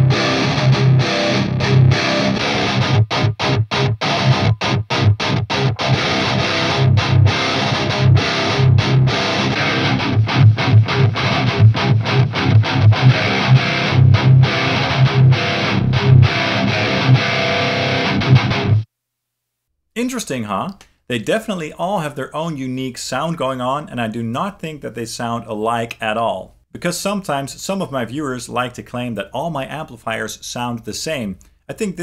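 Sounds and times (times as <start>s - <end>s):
distorted electric guitar riff: 0.0s - 18.9s.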